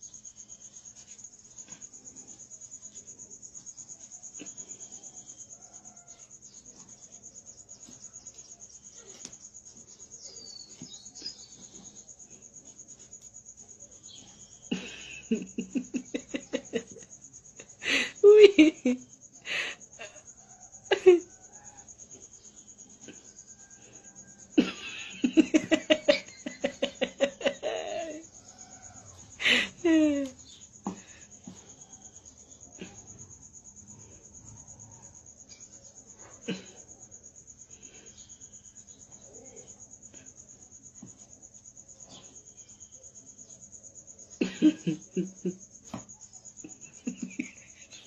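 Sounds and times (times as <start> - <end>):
insects chirping: 0.0 - 48.0
person laughing: 14.7 - 17.1, 17.8 - 20.2, 24.6 - 28.2, 29.4 - 30.4, 44.4 - 45.6, 46.6 - 48.0.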